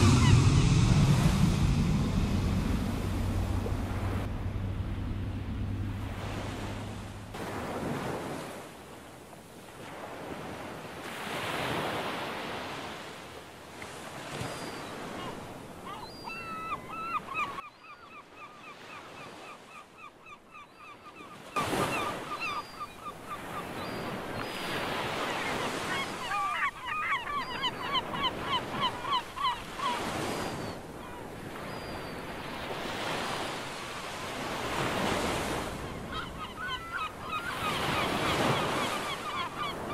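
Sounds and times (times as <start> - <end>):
surf washing in: 0.0 - 16.6, 21.6 - 39.9
wavering bird calls: 35.1 - 39.9.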